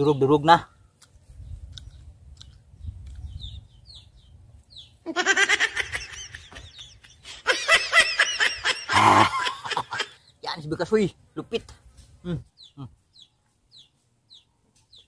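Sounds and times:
birds chirping: 0.0s - 15.0s
high pulsing laughter: 5.0s - 10.2s.

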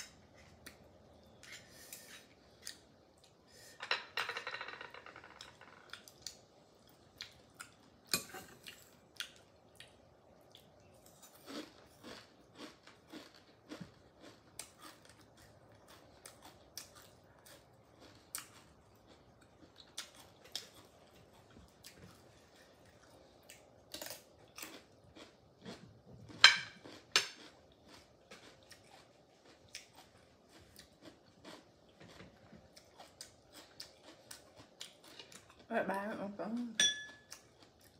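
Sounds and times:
person chewing: 5.9s - 35.7s
spoon and shells clicking on glass plate: 36.8s - 37.3s.

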